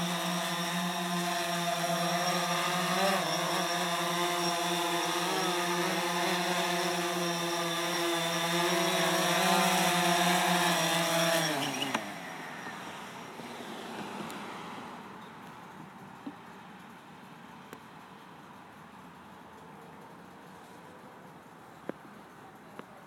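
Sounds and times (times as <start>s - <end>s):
drone motors spinning down: 0.0s - 14.2s
drone propellers buzzing: 0.0s - 14.6s.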